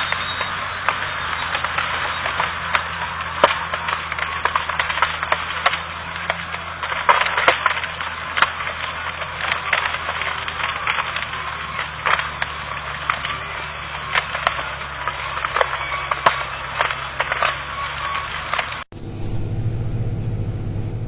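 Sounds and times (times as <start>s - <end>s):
sharp cracks and snaps: 0.0s - 18.9s
heavy machinery engine hum: 18.9s - 21.0s.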